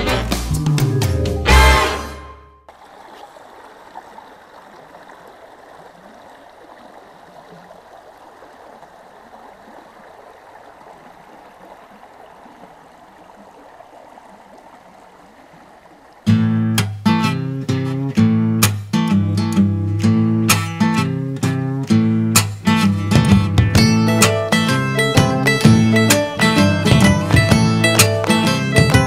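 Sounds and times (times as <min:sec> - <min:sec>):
guitar music: 0:00.0 - 0:02.6, 0:16.3 - 0:29.0
creek flowing over rocks: 0:02.7 - 0:16.9, 0:23.8 - 0:29.0.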